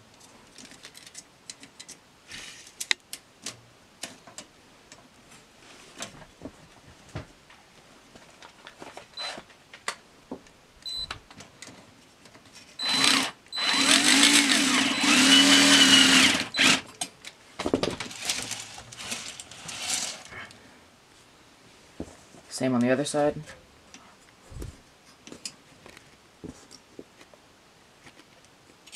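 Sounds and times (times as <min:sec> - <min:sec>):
cordless drill driving screw: 0:12.8 - 0:16.8.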